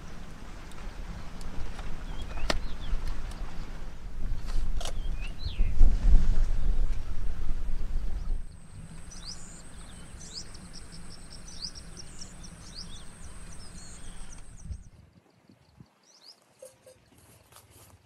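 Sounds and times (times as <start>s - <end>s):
small birds chirping: 0.0s - 3.6s, 4.8s - 5.8s, 8.0s - 17.0s
low background rumble: 0.0s - 14.9s.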